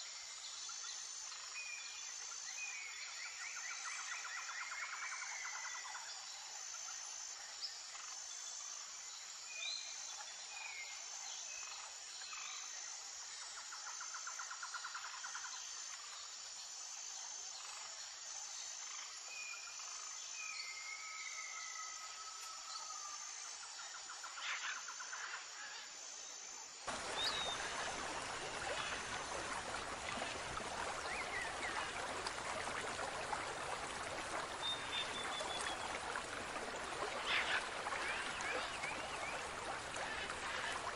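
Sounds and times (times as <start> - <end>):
insects chirping: 25.5 - 40.9
running trickling water: 26.9 - 40.9.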